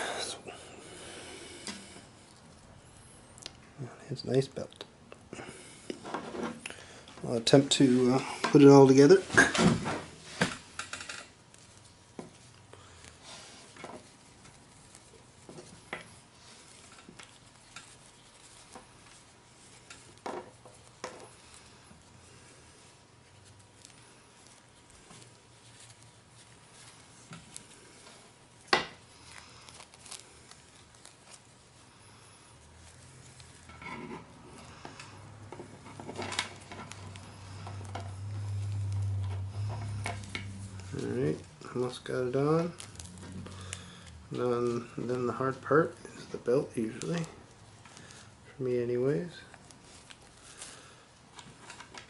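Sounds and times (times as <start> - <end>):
soft rustling: 0.0 - 52.0
low hum: 37.3 - 41.7.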